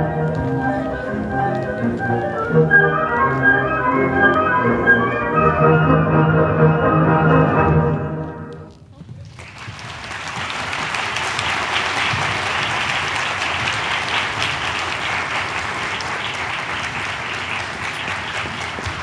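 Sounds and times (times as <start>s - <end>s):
orchestral music: 0.0s - 8.8s
audience applauding: 9.3s - 19.0s.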